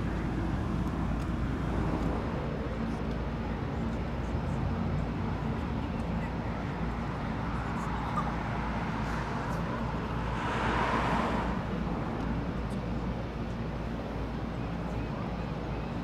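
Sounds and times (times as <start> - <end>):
engine running steadily: 0.0 - 16.0
rush of noise: 6.4 - 13.7.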